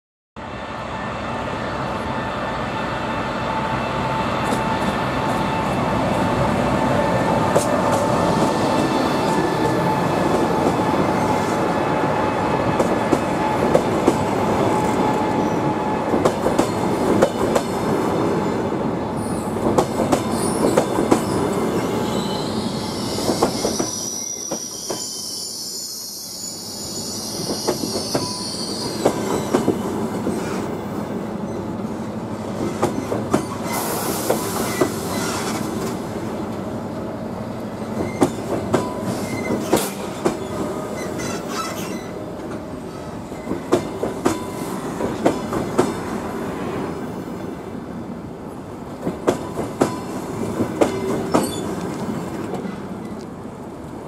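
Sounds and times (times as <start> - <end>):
train wheels rumbling on rails: 1.7 - 25.3, 27.0 - 54.0
high wheel squeal: 20.3 - 29.8, 39.0 - 42.2, 51.2 - 51.8.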